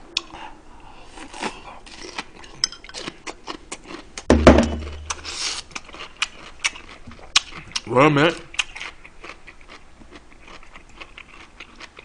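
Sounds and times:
low thud: 4.3s - 5.2s
chewing mouth noises: 5.1s - 12.0s.

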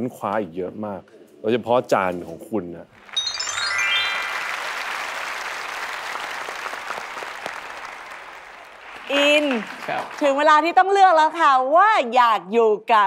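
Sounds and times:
descending chiming tones: 3.0s - 5.6s
audience applauding: 3.0s - 11.0s.

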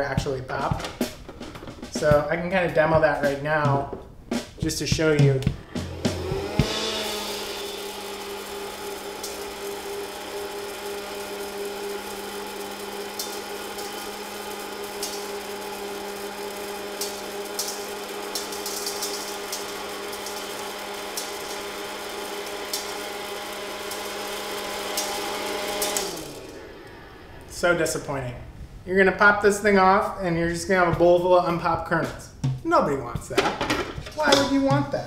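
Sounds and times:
popcorn popper fan hum: 5.6s - 28.0s
kernels clicking into steel bowl: 17.0s - 20.6s.

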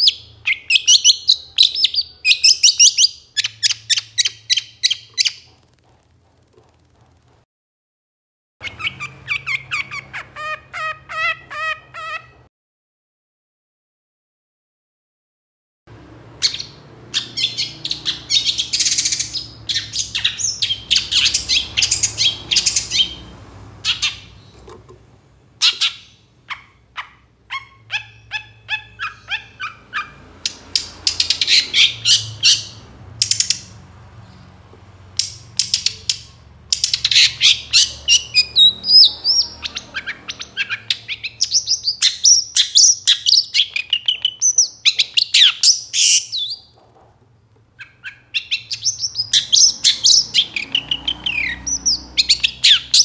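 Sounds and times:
shrike chattering song: 16.4s - 24.6s.

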